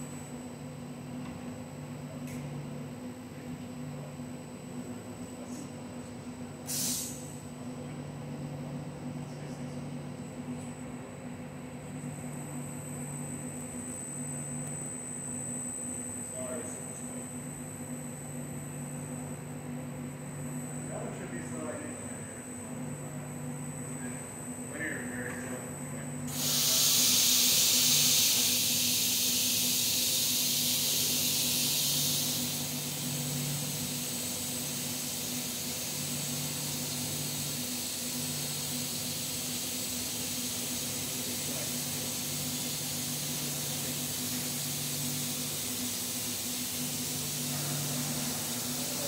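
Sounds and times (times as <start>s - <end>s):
steady machine hum: 0.0s - 49.0s
compressed air hissing: 6.7s - 7.3s, 26.3s - 49.0s.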